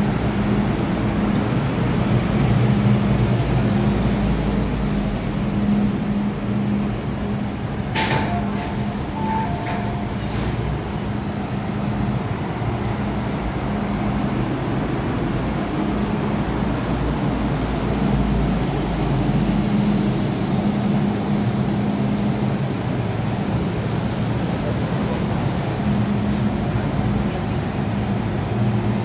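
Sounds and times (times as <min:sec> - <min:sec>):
train traction motor hum: 0:00.0 - 0:29.0
wheel and track rumble: 0:00.0 - 0:29.0
two-note electronic tone: 0:08.3 - 0:10.2.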